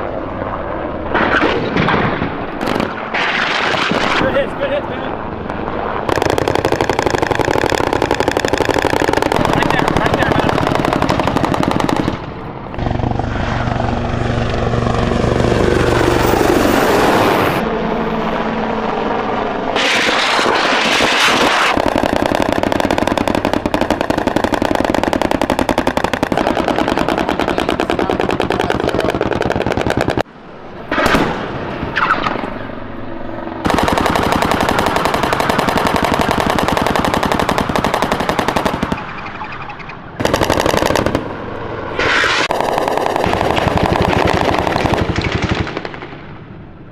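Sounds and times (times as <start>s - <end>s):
rotary cannon firing bursts: 1.1s - 4.5s, 6.0s - 14.2s, 19.7s - 30.3s, 33.6s - 46.5s.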